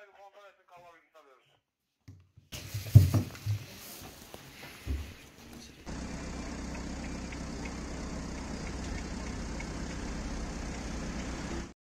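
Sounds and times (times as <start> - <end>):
low street rumble: 5.4 - 11.7.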